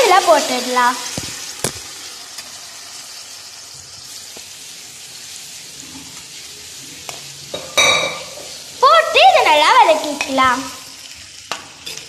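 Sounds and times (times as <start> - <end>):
oil sizzling in a pan: 0.0 - 12.0.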